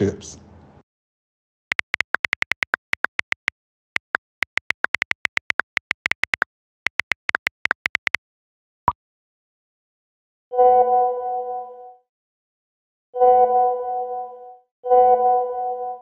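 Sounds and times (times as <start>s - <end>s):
phone keyboard clicks: 1.7s - 8.2s.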